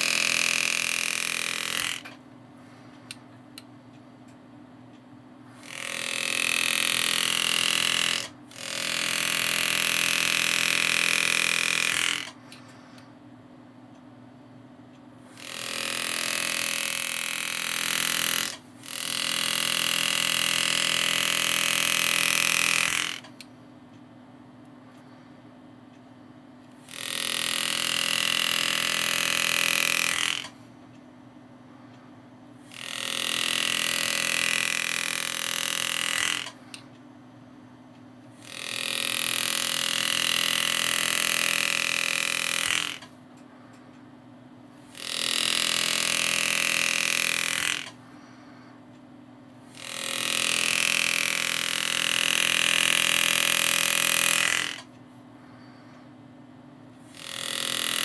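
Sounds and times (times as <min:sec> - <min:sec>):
engraving tool buzzing: 0:00.0 - 0:03.2, 0:05.4 - 0:13.1, 0:15.2 - 0:23.5, 0:26.6 - 0:30.9, 0:31.7 - 0:37.0, 0:38.2 - 0:44.0, 0:44.7 - 0:48.8, 0:49.5 - 0:56.1, 0:56.9 - 0:58.0.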